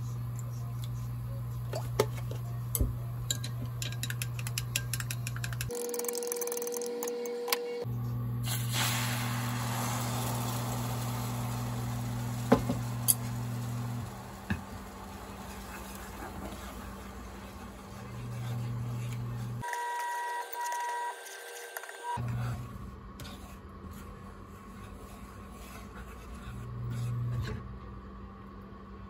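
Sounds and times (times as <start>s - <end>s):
cooktop hum: 0.0s - 29.0s
egg sizzling in a frying pan: 8.4s - 17.4s.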